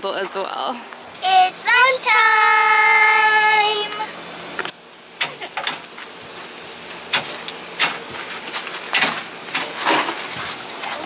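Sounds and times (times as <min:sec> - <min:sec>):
plastic containers rustling and scuffing: 0:08.0 - 0:11.0.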